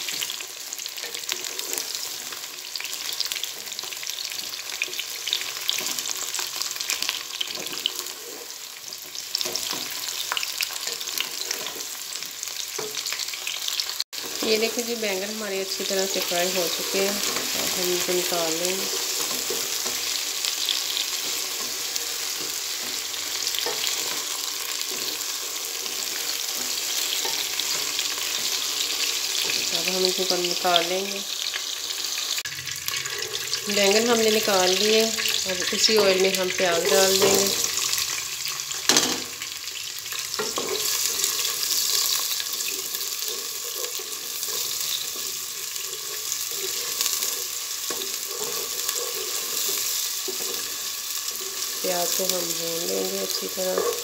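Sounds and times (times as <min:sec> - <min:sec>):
eggplant sizzling in oil: 0:00.0 - 0:54.0
spatula scraping and knocking pan: 0:03.4 - 0:13.2, 0:15.8 - 0:30.3, 0:35.2 - 0:38.0, 0:40.2 - 0:54.0
wooden spatula stirring: 0:40.4 - 0:51.9.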